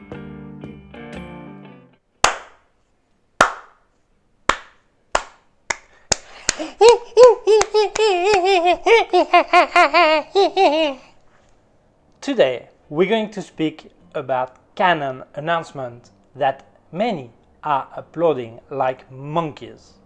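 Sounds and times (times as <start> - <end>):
hand clapping: 2.2 - 2.7, 3.4 - 3.9, 4.5 - 8.5
person hooting like a monkey: 6.4 - 10.3.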